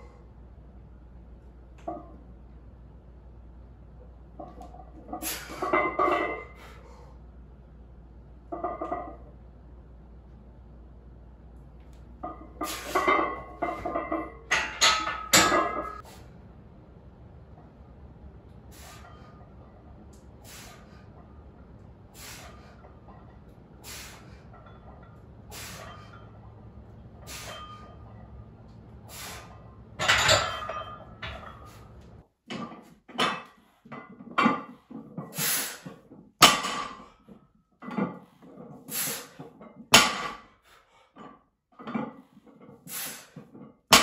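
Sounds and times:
steady low hum: 0.0 - 32.3
short hissing breaths: 18.7 - 19.3, 20.4 - 21.2, 22.1 - 22.8, 23.8 - 24.5, 25.4 - 26.1, 27.2 - 27.7, 29.0 - 29.7, 35.3 - 35.9, 38.9 - 39.4, 42.9 - 43.4.

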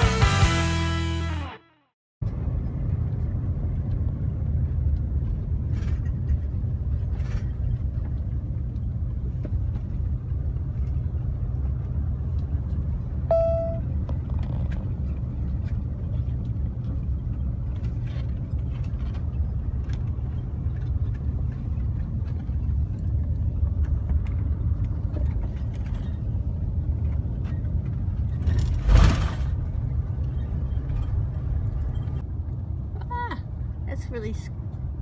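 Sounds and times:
road and engine rumble in car: 2.2 - 35.0.

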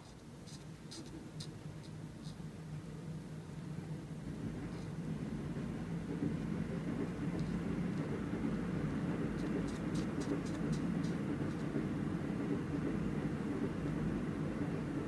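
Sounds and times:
marker scratching on paper: 0.0 - 2.4, 9.4 - 11.6
steady low rumble: 2.7 - 14.7.

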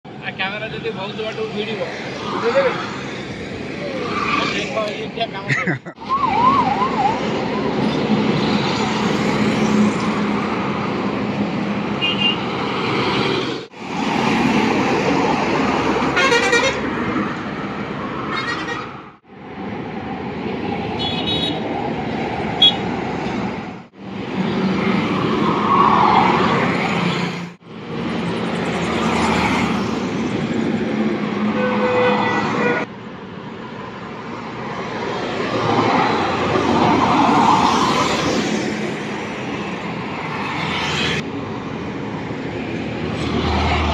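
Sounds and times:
trucks and bus passing: 0.1 - 43.9
vehicle horn toots: 16.2 - 16.8, 31.6 - 32.8.

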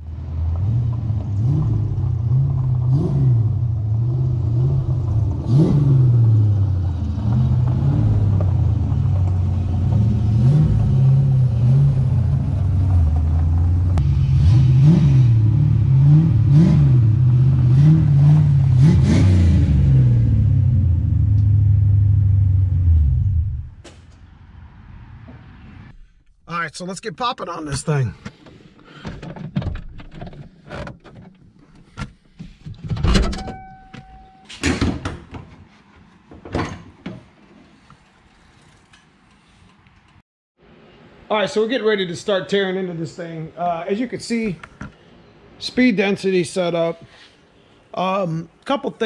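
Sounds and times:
car engine revving: 0.3 - 23.8.

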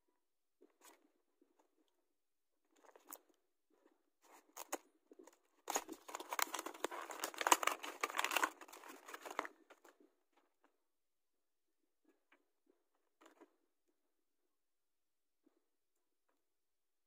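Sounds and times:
plastic packaging crinkling: 5.7 - 9.6.

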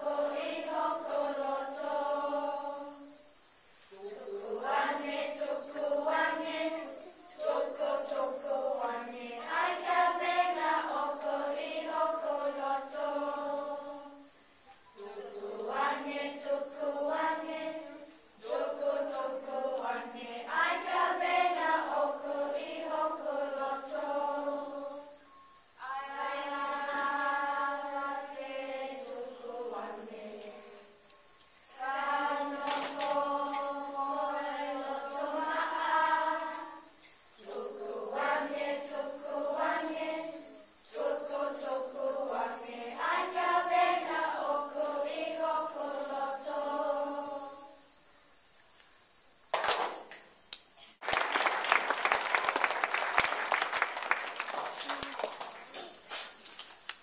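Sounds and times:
children singing together: 0.0 - 3.0, 4.0 - 14.3, 15.0 - 25.1, 25.8 - 30.9, 31.7 - 47.7
steady high hiss: 0.0 - 57.0.

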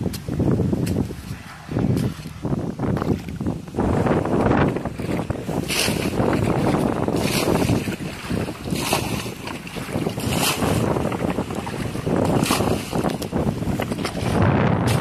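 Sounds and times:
bucket splashing water: 4.4 - 15.0.

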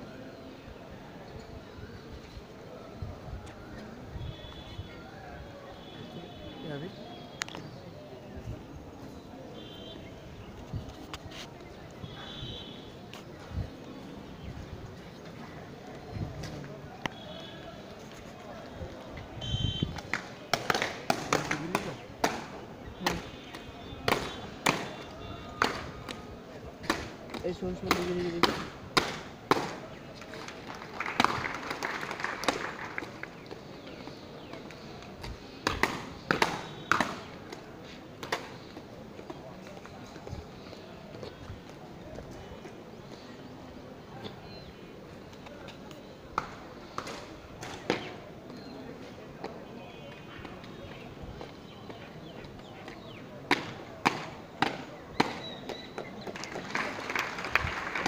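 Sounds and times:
footfalls and scuffs: 10.5 - 12.0.

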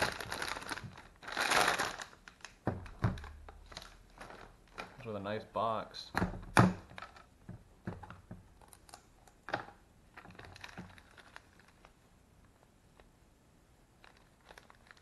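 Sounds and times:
plastic bag rustling: 0.0 - 5.3, 8.6 - 12.0, 14.0 - 15.0.

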